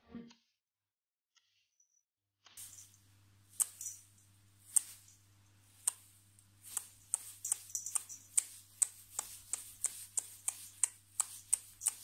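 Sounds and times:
faint low hum: 2.6 - 12.0
sharp clicks: 2.6 - 12.0.

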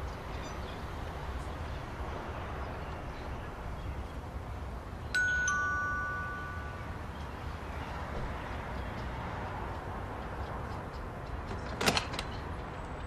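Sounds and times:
low street background: 0.0 - 13.0
two-tone doorbell chime: 5.2 - 7.0.

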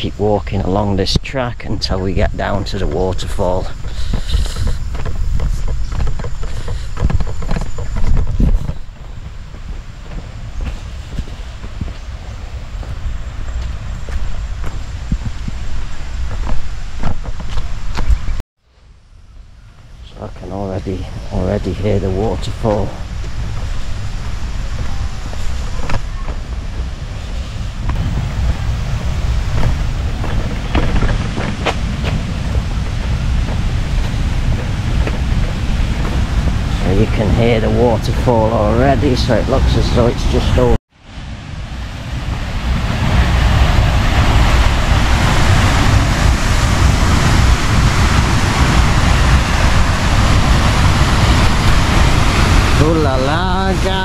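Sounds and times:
distant waterfall roar: 0.0 - 54.0
wind rumbling on microphone: 0.0 - 54.0
footsteps on dirt path: 2.0 - 18.4, 21.4 - 38.9.

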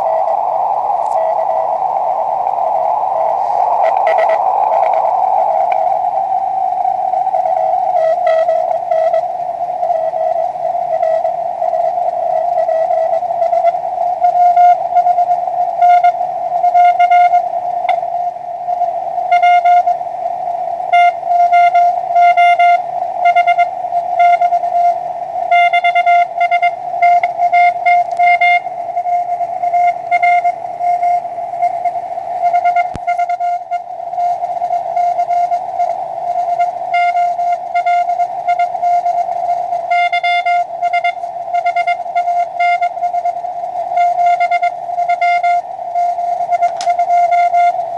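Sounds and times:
morse code tone: 0.0 - 18.0, 18.8 - 20.0, 20.9 - 47.8
radio receiver hiss: 0.0 - 47.9.

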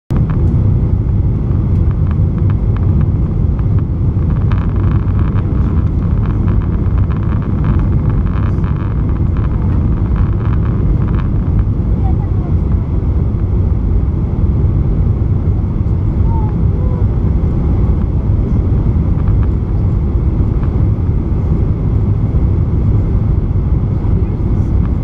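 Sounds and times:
jet engine rumble: 0.1 - 25.0
rushing air: 0.1 - 25.0
faint clicks and rattles: 1.7 - 12.8.

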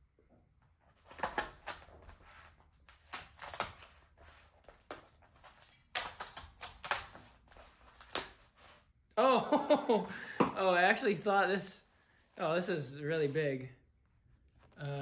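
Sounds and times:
scissors slicing and scraping tape: 2.9 - 4.1, 4.7 - 8.6.

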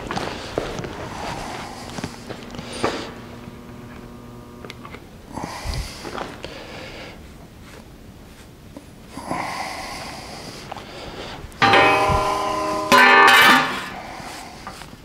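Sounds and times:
faint steady hum: 0.0 - 15.0
brush sweeping metal chips: 11.6 - 14.0.

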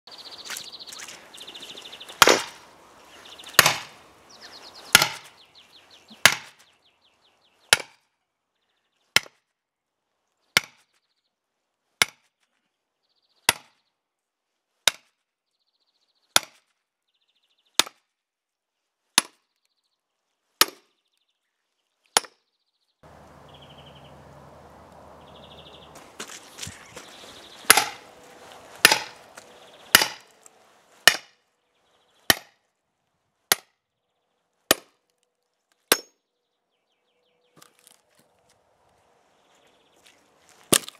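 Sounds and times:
sledgehammer striking steel wedge: 2.2 - 2.6, 3.6 - 4.0, 4.9 - 5.3, 6.2 - 6.6, 27.7 - 28.1, 28.8 - 29.3, 29.9 - 30.3, 31.0 - 31.4, 32.3 - 32.5, 33.5 - 33.7, 35.9 - 36.2.

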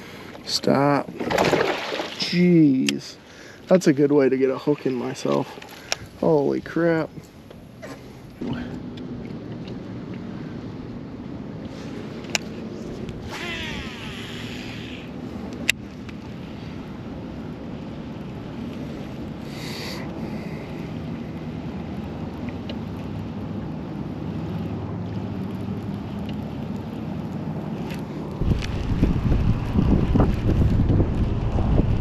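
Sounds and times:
wind noise on microphone: 28.3 - 32.0.

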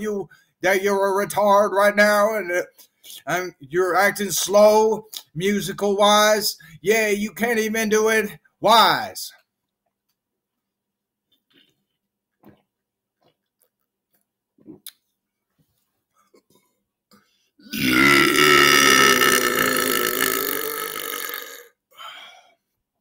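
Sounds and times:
man belching loudly: 17.7 - 21.7.

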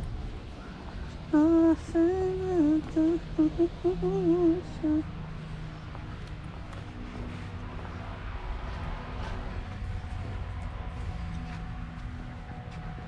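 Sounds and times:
woman humming: 1.4 - 5.1.

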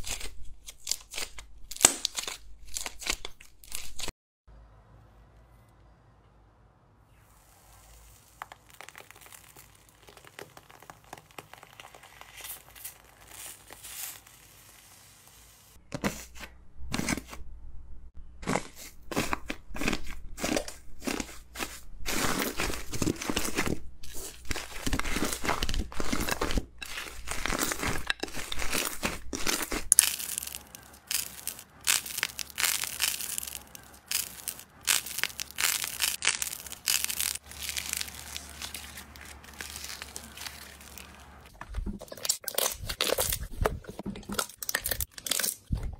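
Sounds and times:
crusted slime crunching: 0.0 - 4.1, 7.4 - 15.3, 18.4 - 43.6, 44.3 - 45.7
slime crackling: 7.3 - 15.5, 20.4 - 41.5.

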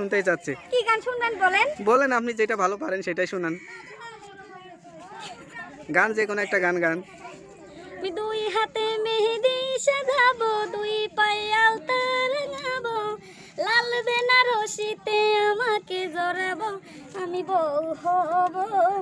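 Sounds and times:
woman singing unaccompanied: 7.8 - 19.0.

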